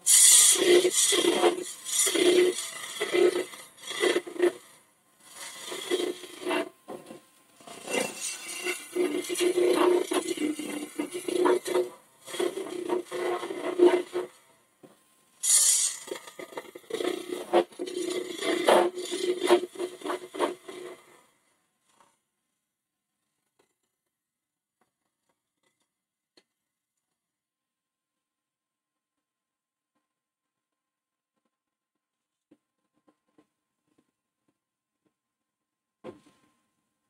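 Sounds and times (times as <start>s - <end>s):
lathe tool scraping wood: 0.0s - 14.4s, 15.4s - 21.2s.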